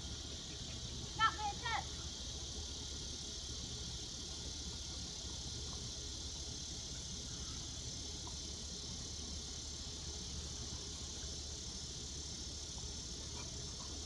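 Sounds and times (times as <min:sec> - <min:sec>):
high hiss: 0:00.0 - 0:14.0.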